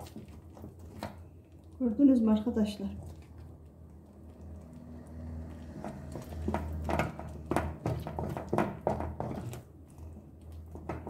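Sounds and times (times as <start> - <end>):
wooden spoon scraping a pan: 5.3 - 11.0.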